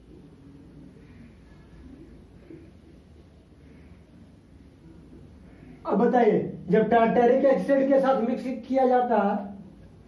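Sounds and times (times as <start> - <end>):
low room hum: 0.0 - 10.0.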